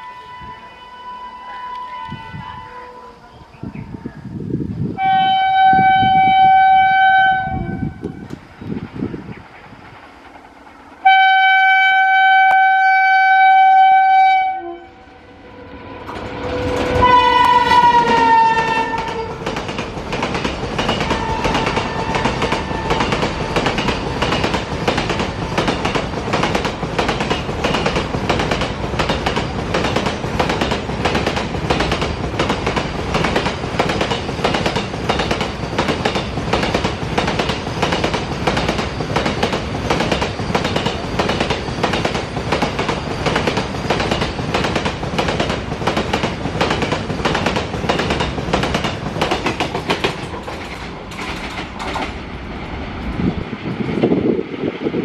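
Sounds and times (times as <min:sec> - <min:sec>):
train rolling rumble: 0:00.0 - 0:55.0
train wheels clattering over joints: 0:08.2 - 0:11.1, 0:16.1 - 0:52.3.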